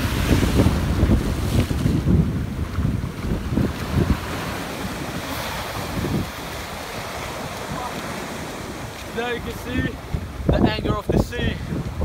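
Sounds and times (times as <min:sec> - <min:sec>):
ocean surf breaking: 0:00.0 - 0:12.0
wind buffeting microphone: 0:00.0 - 0:12.0.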